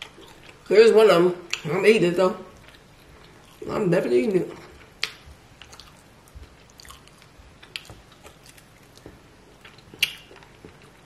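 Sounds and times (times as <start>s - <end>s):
chewing and mouth smacks: 0.0s - 0.7s, 1.5s - 1.7s, 2.5s - 3.7s, 4.6s - 11.0s.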